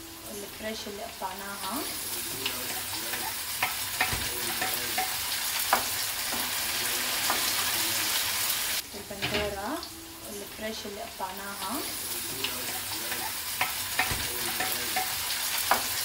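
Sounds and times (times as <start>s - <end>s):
tomatoes sizzling in a frying pan: 0.0s - 16.0s
bowl and spatula knocking on pan: 3.6s - 6.5s, 13.6s - 16.0s.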